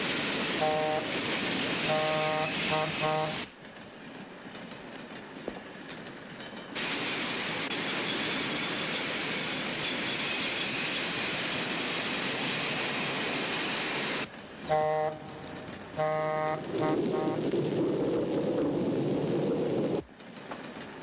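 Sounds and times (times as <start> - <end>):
moving train rushing: 0.0 - 21.0
train horn blasts: 0.6 - 1.2, 1.8 - 3.5, 14.7 - 17.4.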